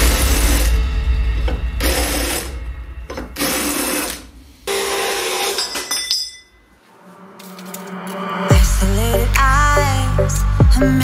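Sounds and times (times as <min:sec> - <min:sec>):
cordless drill boring through steel: 0:00.0 - 0:00.8, 0:01.8 - 0:06.0.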